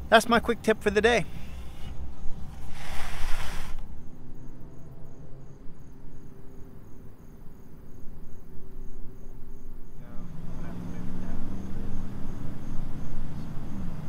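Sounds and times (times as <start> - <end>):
cricket chirping: 0.0 - 14.0
brief rush of noise: 1.3 - 3.9.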